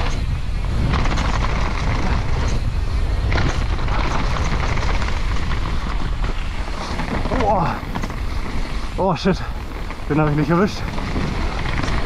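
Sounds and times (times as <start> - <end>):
bike tyres on dirt: 0.0 - 12.0
wind rumble on microphone: 0.0 - 12.0.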